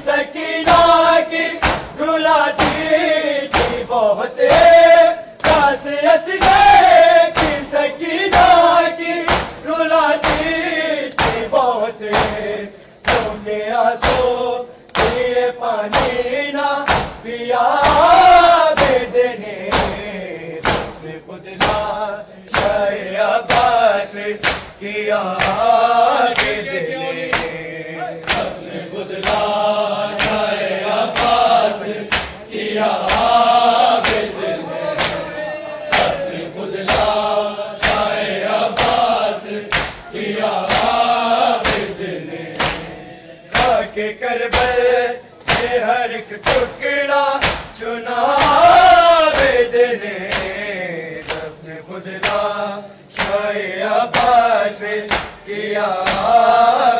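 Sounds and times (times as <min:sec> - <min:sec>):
men chanting in unison: 0:00.0 - 0:56.9
hands beating on chests: 0:01.6 - 0:02.0, 0:02.6 - 0:03.9, 0:04.5 - 0:05.8, 0:06.4 - 0:07.7, 0:08.3 - 0:09.6, 0:10.2 - 0:11.5, 0:14.0 - 0:15.3, 0:16.9 - 0:17.2, 0:21.6 - 0:22.9, 0:24.4 - 0:24.8, 0:25.4 - 0:26.7, 0:28.2 - 0:29.5, 0:30.1 - 0:30.5, 0:31.1 - 0:31.5, 0:32.1 - 0:32.4, 0:33.0 - 0:35.3, 0:35.9 - 0:38.2, 0:38.8 - 0:41.0, 0:41.6 - 0:42.9, 0:43.5 - 0:44.8, 0:47.4 - 0:47.8, 0:50.3 - 0:50.6, 0:55.1 - 0:55.4.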